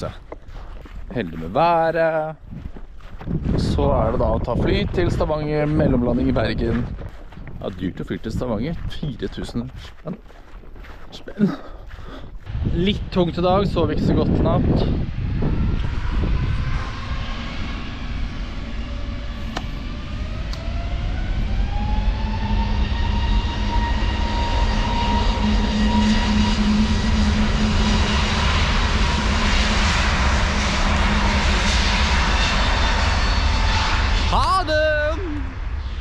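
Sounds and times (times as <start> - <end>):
airliner engine whine: 0.0 - 9.6, 11.9 - 36.0
low drone: 12.3 - 36.0.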